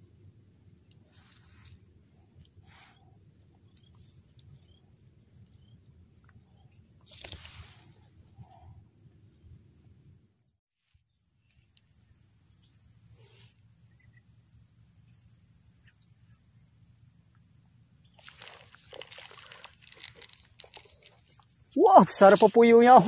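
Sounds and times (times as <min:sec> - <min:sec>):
insects droning: 0:00.0 - 0:23.0
rustling and handling clicks: 0:18.2 - 0:21.4.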